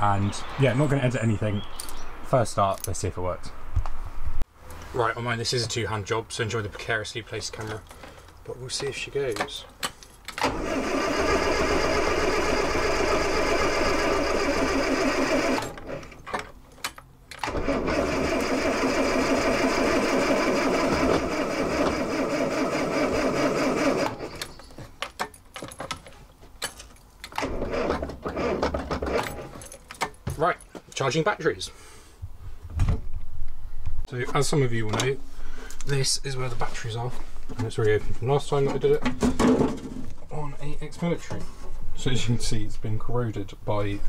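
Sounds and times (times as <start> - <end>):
starter motor cranking engine: 10.4 - 16.2, 17.4 - 24.6, 27.3 - 29.5.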